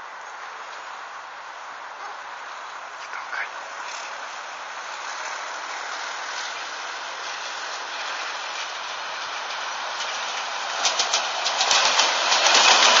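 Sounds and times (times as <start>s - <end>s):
locomotive approaching rushing noise: 3.6s - 13.0s.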